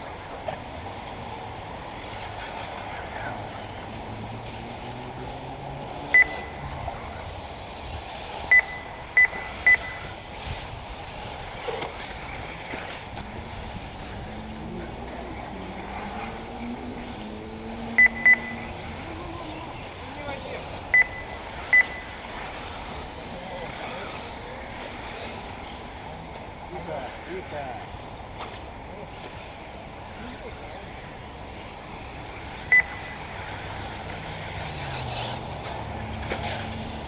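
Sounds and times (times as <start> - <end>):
noisy background: 0.0 - 37.0
short electronic beeps: 6.1 - 6.7, 8.5 - 10.2, 18.0 - 18.8, 20.9 - 22.2, 32.7 - 33.2
rc car motor whines: 30.8 - 37.0.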